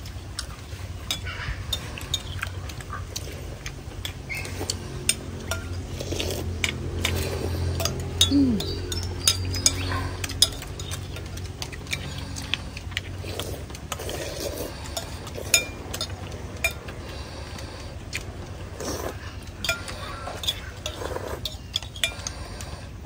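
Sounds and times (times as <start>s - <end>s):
spoons clinking against ceramic bowls: 1.0s - 3.3s, 4.0s - 13.0s, 13.9s - 17.0s, 18.8s - 22.8s.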